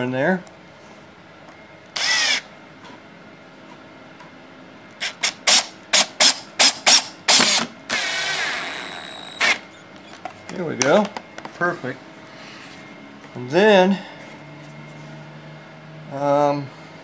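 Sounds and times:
cordless drill driving a screw: 2.0 - 2.5, 5.0 - 9.7.

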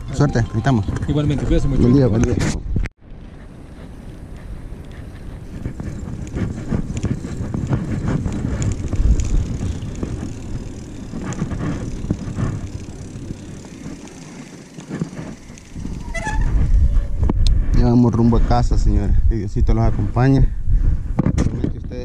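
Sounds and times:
wind buffeting microphone: 0.0 - 22.0
bicycle tyres on asphalt: 3.0 - 22.0
light bike rattles: 3.2 - 17.4.

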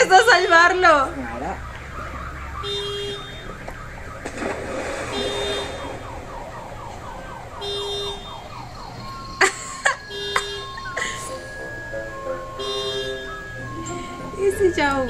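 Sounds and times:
electronic siren wailing: 0.0 - 15.0
short steady beep: 1.3 - 4.2, 7.5 - 15.0.

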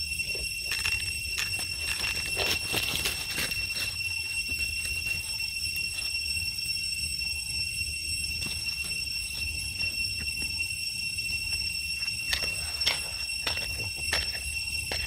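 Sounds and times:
high-pitched insect drone: 0.0 - 15.0
dry leaves rustling: 0.6 - 6.7.

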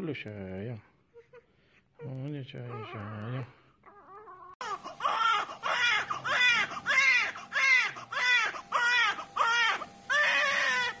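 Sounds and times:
baby crying: 2.6 - 11.0.

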